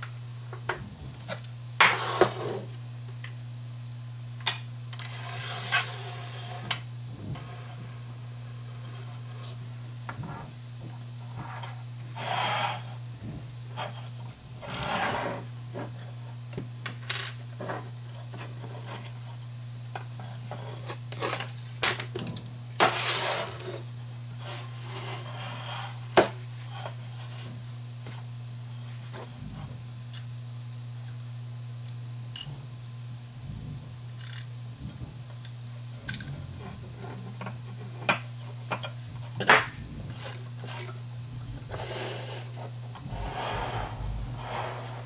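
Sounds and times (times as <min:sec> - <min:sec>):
steady low hum: 0:00.0 - 0:45.0
rubbing scrapes on wooden table: 0:05.1 - 0:06.7, 0:11.3 - 0:13.0, 0:13.8 - 0:15.5, 0:22.8 - 0:23.8, 0:24.4 - 0:26.1, 0:41.7 - 0:45.0.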